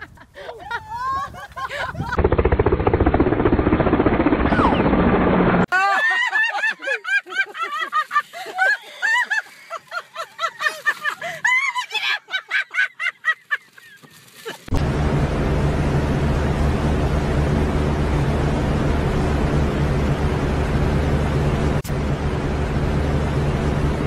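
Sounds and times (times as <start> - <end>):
woman squealing laughter: 0.0 - 2.2, 5.7 - 14.7.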